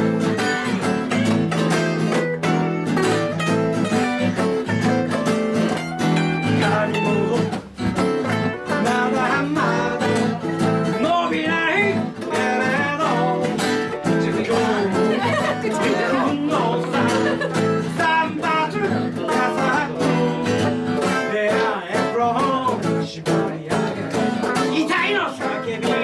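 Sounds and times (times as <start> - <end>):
guitar chords: 0.0 - 26.0
wavering high guitar notes: 0.0 - 26.0.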